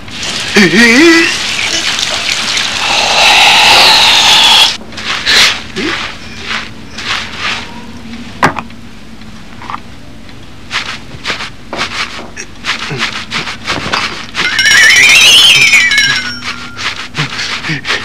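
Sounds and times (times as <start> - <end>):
water pouring over hair: 0.0 - 4.8
hair scrubbing: 1.2 - 7.6, 10.7 - 18.0.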